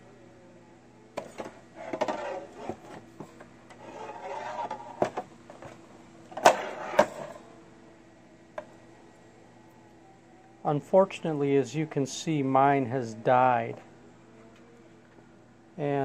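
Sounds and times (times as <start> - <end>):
faint steady hum: 0.0 - 16.0
plastic housing rustling and scraping: 1.2 - 7.4.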